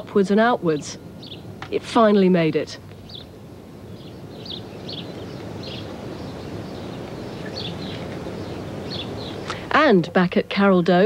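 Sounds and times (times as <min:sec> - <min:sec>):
low background noise: 0:00.0 - 0:11.0
faint high bird chirps: 0:03.0 - 0:09.5.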